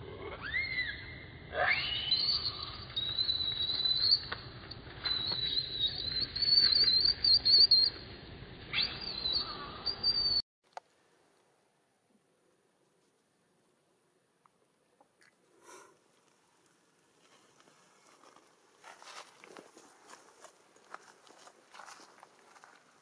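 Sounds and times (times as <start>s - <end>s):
baby monkey screaming: 0.3s - 3.3s.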